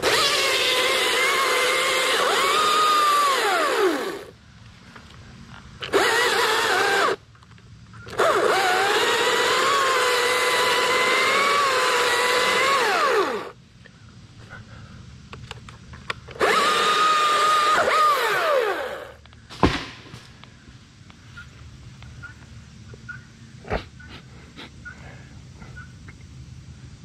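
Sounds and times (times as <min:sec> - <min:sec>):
chainsaw motor and chain whine: 0:00.0 - 0:04.4, 0:05.5 - 0:13.6, 0:16.2 - 0:19.3.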